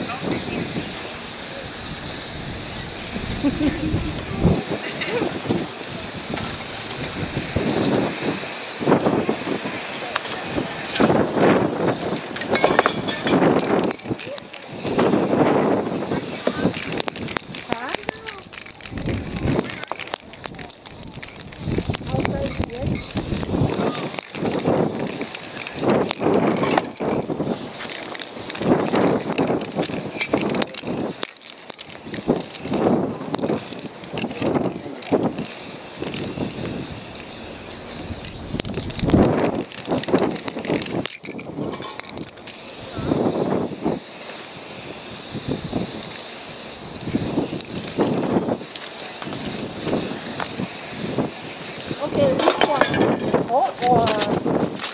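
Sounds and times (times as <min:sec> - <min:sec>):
spray-paint cans hissing: 0:00.0 - 0:54.9
wind buffeting microphone: 0:00.0 - 0:54.9
sharp clicks: 0:16.7 - 0:42.6.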